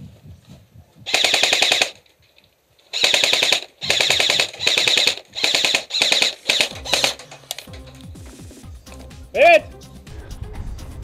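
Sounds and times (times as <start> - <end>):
airsoft rifle bursts: 1.1 - 2.1, 2.9 - 8.0.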